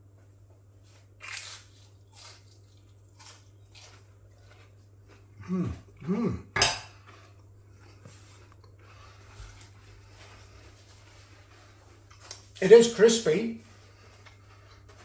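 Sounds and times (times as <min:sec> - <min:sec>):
steady low hum: 0:00.0 - 0:15.0
cutlery clinking on a plate: 0:06.6 - 0:07.0.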